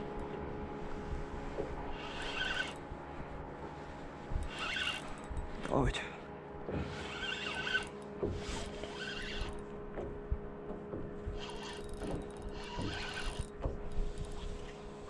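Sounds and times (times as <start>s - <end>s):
steady low hum: 0.0s - 15.0s
fishing reel whirring: 1.9s - 2.9s, 4.3s - 5.7s, 6.8s - 9.7s, 11.3s - 15.0s.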